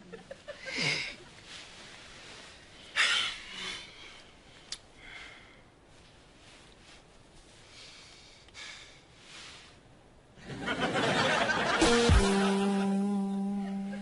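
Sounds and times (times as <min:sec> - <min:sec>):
man breathing noisily: 0:02.7 - 0:05.9, 0:07.6 - 0:09.8.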